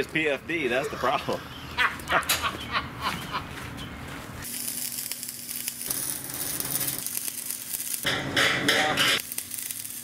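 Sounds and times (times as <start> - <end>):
electric arc welding crackling: 4.4 - 10.0.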